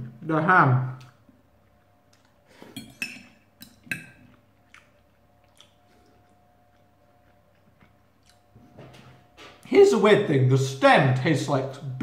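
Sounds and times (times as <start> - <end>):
knife and fork clinking on plate: 2.8 - 4.3.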